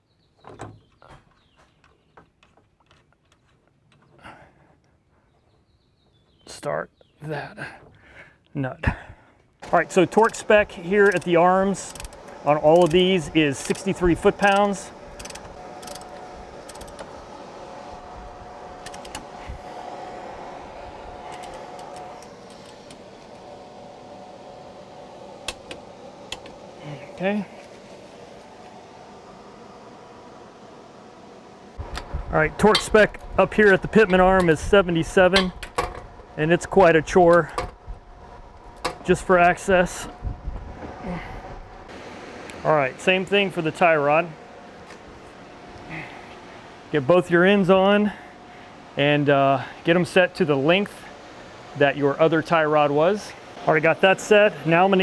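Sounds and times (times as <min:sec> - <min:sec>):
steady mechanical hum: 0:06.5 - 0:55.0
wrench clicking: 0:11.0 - 0:13.0, 0:14.5 - 0:17.0.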